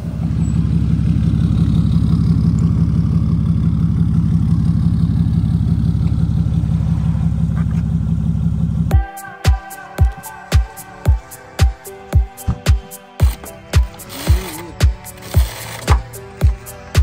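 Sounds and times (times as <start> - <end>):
truck engine idling: 0.0 - 17.0
electronic music with kick drum: 8.9 - 17.0.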